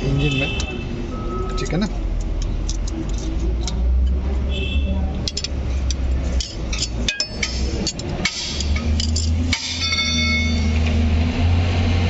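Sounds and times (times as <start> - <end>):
metal tools clinking on engine: 5.2 - 10.9
ringing metal tones: 6.4 - 10.8.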